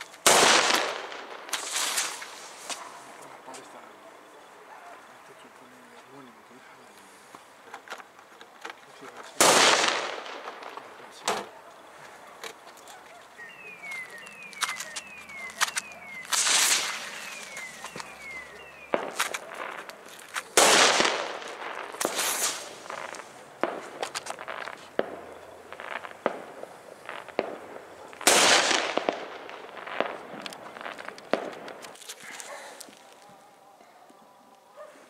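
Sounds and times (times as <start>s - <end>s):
firecrackers cracking and popping: 0.0s - 3.9s, 7.4s - 33.4s
loud firework blasts: 0.0s - 4.0s, 9.3s - 11.6s, 13.5s - 33.0s.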